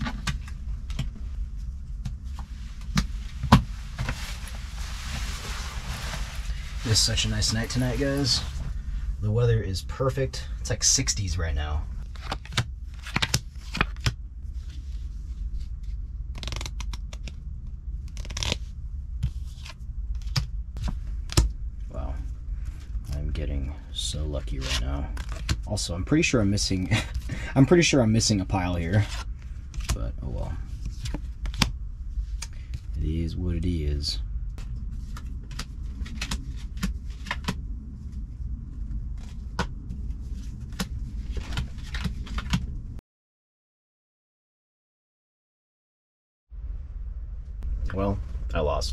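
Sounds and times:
low steady rumble: 0:00.0 - 0:43.0, 0:46.5 - 0:48.9
steady low hum: 0:00.0 - 0:43.0, 0:46.5 - 0:48.9
playing cards clicking: 0:12.2 - 0:14.2, 0:16.4 - 0:17.4, 0:18.1 - 0:18.6, 0:35.2 - 0:37.6, 0:40.7 - 0:42.6
playing cards snapping: 0:12.2 - 0:14.2, 0:16.4 - 0:17.4, 0:18.1 - 0:18.6.

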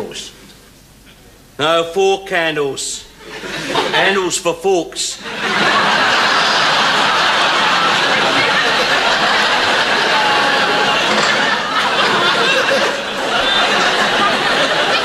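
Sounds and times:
audience laughing: 0:03.2 - 0:04.2, 0:05.2 - 0:15.0.

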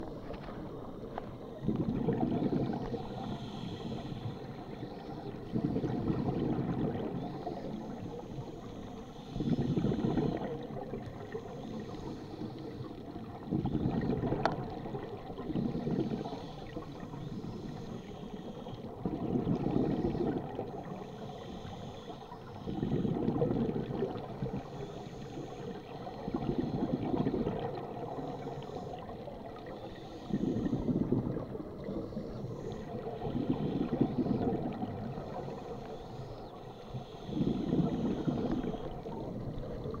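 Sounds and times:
exhaled bubbles gurgling: 0:00.0 - 0:40.0
regulator inhalation hiss: 0:02.7 - 0:05.3, 0:07.2 - 0:12.9, 0:15.5 - 0:18.9, 0:19.9 - 0:23.2, 0:24.5 - 0:26.9, 0:27.8 - 0:30.9, 0:35.2 - 0:39.3.

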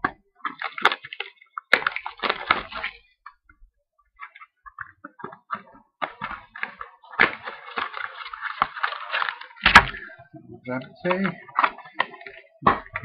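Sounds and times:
small taps and crinkles: 0:00.0 - 0:10.2, 0:10.8 - 0:13.0
cardboard and wrapping tearing: 0:00.4 - 0:03.0, 0:06.0 - 0:10.1.

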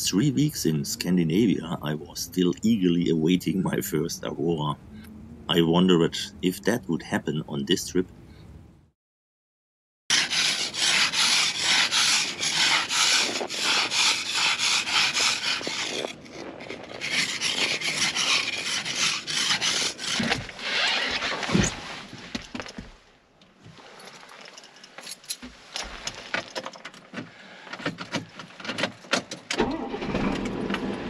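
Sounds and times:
ice scraper rasping frost: 0:10.1 - 0:22.2.

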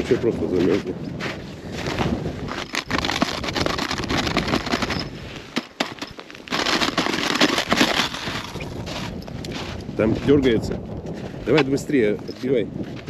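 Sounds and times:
footsteps crunching on snow: 0:00.0 - 0:13.0.

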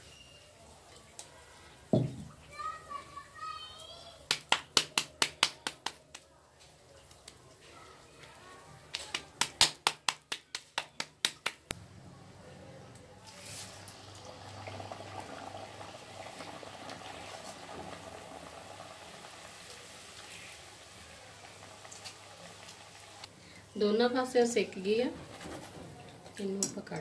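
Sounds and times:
dough frying in hot oil: 0:00.0 - 0:12.0, 0:13.1 - 0:23.3
hands patting dough: 0:04.3 - 0:06.3, 0:08.9 - 0:11.7.

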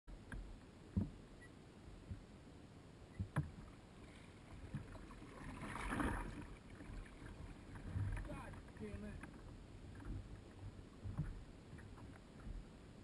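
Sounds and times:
paddle knocking against hull: 0:00.2 - 0:01.2, 0:03.2 - 0:03.7, 0:04.6 - 0:12.7
water splashing from kayak paddling: 0:03.1 - 0:13.0.

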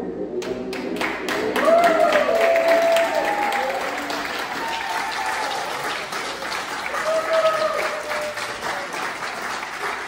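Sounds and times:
audience applauding: 0:00.5 - 0:10.0.

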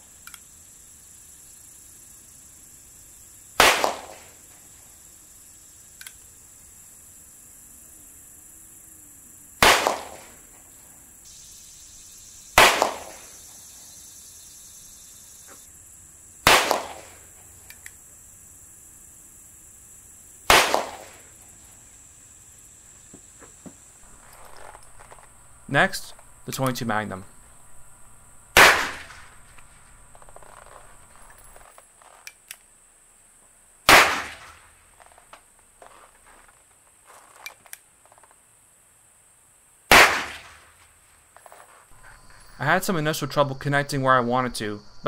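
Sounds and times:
pistol shots: 0:03.6 - 0:04.4, 0:09.6 - 0:10.4, 0:12.6 - 0:13.5, 0:16.4 - 0:17.2, 0:20.5 - 0:21.3, 0:28.5 - 0:30.7, 0:33.9 - 0:34.7, 0:39.9 - 0:40.6.

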